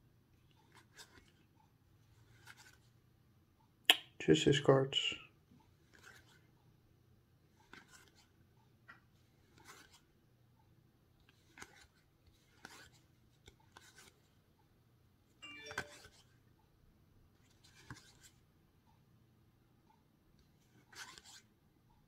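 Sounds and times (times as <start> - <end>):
cards sliding: 2.2 - 2.8, 5.9 - 6.4, 7.6 - 8.3, 9.4 - 10.0, 11.3 - 14.2, 15.6 - 16.2, 17.5 - 18.3, 20.8 - 21.4.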